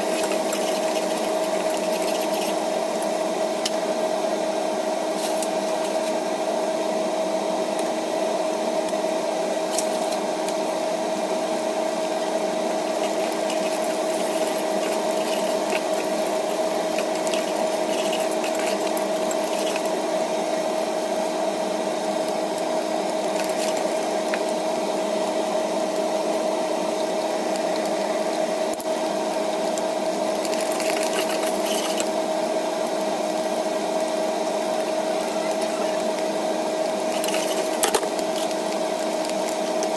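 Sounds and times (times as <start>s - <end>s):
machine hum: 0.0s - 39.9s
metal spatula scraping clay pot: 13.0s - 19.9s.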